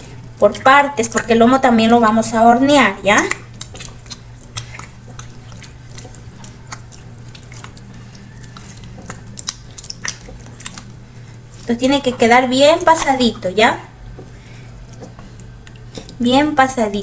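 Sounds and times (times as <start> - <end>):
hands squelching wet marinade: 0.0 - 17.0
low steady hum: 0.0 - 17.0
small wet clicks: 3.0 - 13.5.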